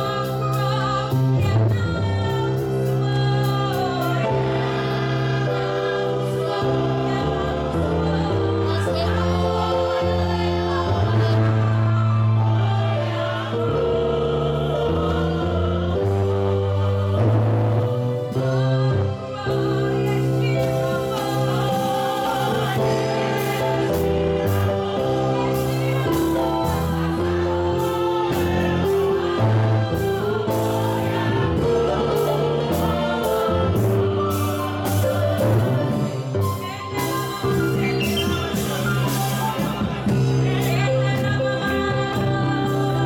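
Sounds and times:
choir singing gospel music: 0.0s - 43.0s
sharp percussion beat: 37.0s - 41.3s.

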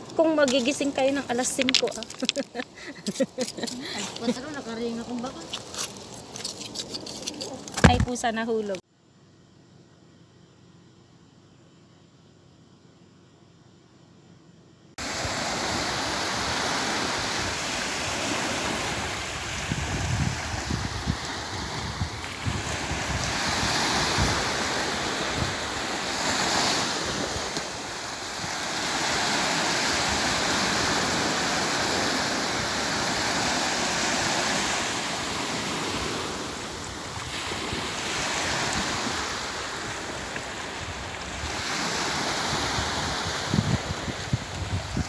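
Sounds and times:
small waves breaking on beach: 15.0s - 45.0s
wind buffeting microphone: 15.2s - 34.6s, 35.3s - 45.0s.

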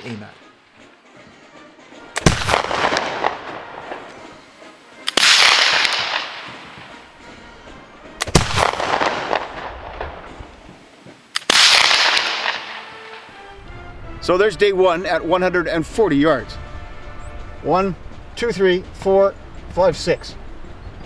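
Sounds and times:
rifle shots echoing: 2.1s - 4.3s, 5.0s - 7.0s, 8.2s - 10.5s, 11.3s - 13.3s.

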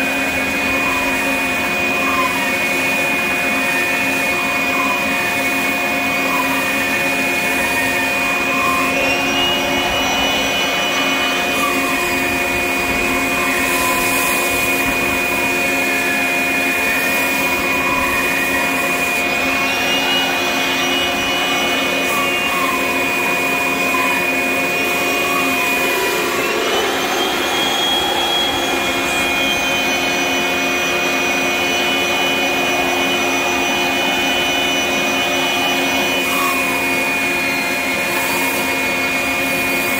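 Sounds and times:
sander whining: 0.0s - 39.9s
shop vacuum running: 0.0s - 39.9s.

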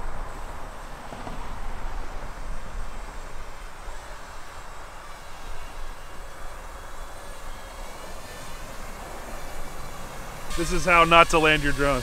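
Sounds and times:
drone propellers humming: 0.0s - 12.0s.

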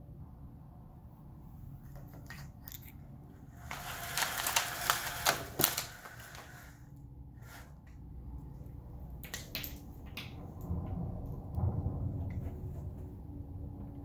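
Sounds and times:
window blind slats clattering: 3.6s - 6.8s.

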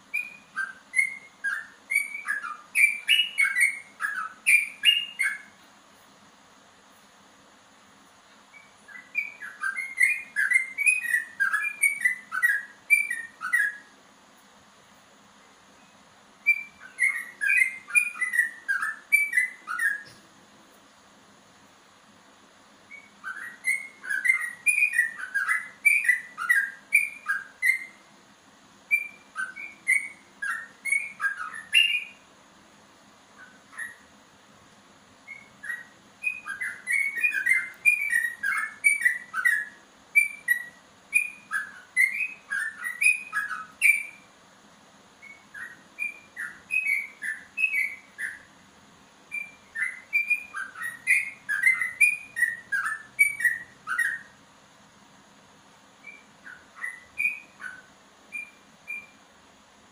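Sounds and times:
bird singing whistled notes: 0.0s - 5.6s, 8.4s - 14.0s, 15.7s - 20.3s, 22.8s - 28.1s, 28.8s - 32.3s, 33.3s - 34.2s, 35.2s - 44.3s, 45.2s - 48.6s, 49.3s - 54.4s, 56.0s - 59.3s.

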